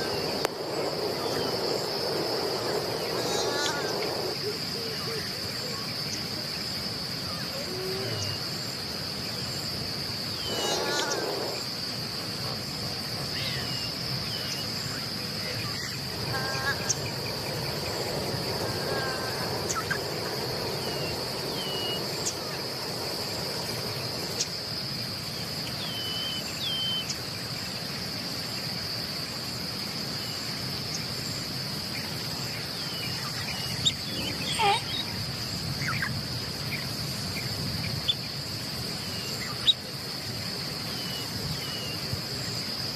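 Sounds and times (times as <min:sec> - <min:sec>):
loud animal calls: 0:00.0 - 0:04.6, 0:10.4 - 0:11.7, 0:16.0 - 0:24.4, 0:34.2 - 0:35.0
high-pitched insect drone: 0:00.0 - 0:29.6, 0:30.2 - 0:36.2.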